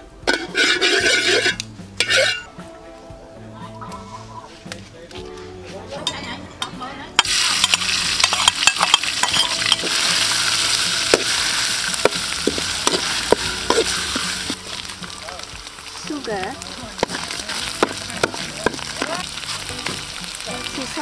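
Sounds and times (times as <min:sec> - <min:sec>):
metal spatula scraping wok: 0:00.2 - 0:02.5, 0:07.2 - 0:15.2
paste sizzling in oil: 0:07.2 - 0:21.0.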